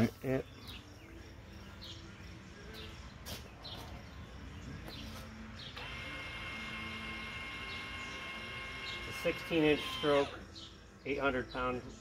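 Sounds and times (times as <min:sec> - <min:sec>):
birds chirping: 0:00.0 - 0:12.0
electric motor whine: 0:05.7 - 0:10.5.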